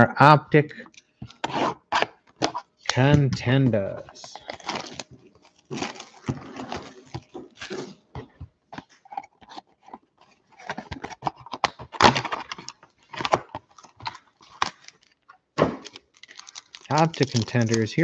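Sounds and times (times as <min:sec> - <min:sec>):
cardboard rustling: 0:01.3 - 0:18.0
foil packs rustling: 0:04.1 - 0:18.0
plastic wrap crinkling: 0:04.1 - 0:18.0.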